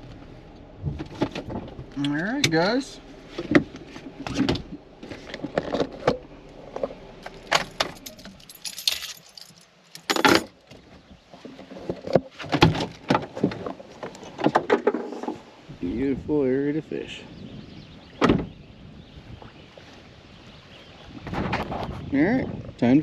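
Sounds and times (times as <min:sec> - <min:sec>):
keys jangling: 0:07.9 - 0:10.5.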